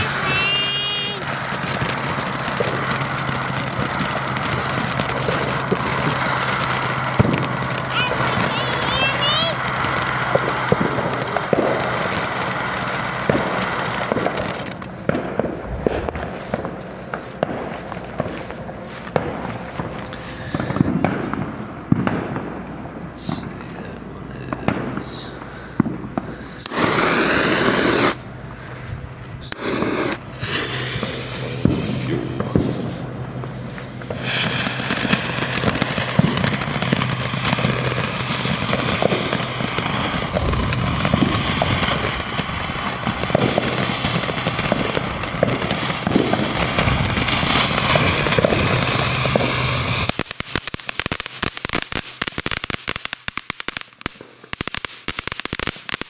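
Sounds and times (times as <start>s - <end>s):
short hissing bursts: 0.0s - 16.6s, 25.0s - 52.7s
firework fountain hissing and crackling: 0.0s - 56.0s
footsteps: 15.1s - 21.1s.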